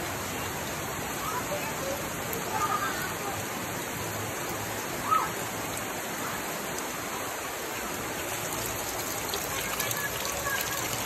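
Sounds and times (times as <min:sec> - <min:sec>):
water splashing onto rocks: 0:04.4 - 0:11.0.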